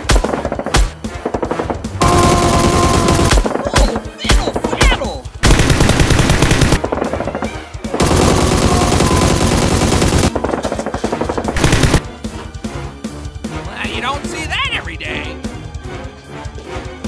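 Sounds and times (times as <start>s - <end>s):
automatic gunfire bursts: 2.0s - 3.4s, 5.4s - 7.2s, 8.0s - 12.0s.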